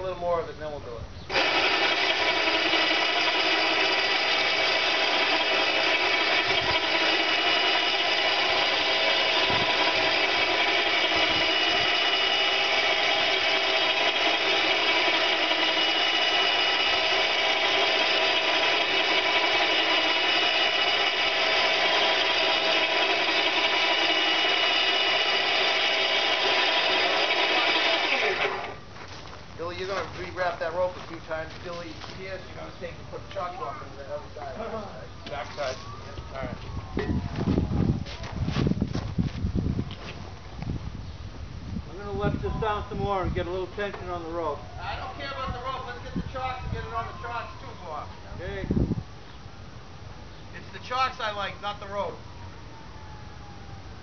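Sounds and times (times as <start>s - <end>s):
cable winch motor whine: 1.3s - 28.9s.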